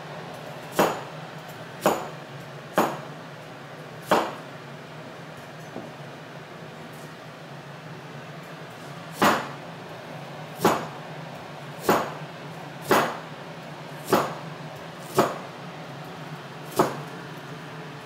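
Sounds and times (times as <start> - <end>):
knife chopping on plastic board: 16.8 - 17.0.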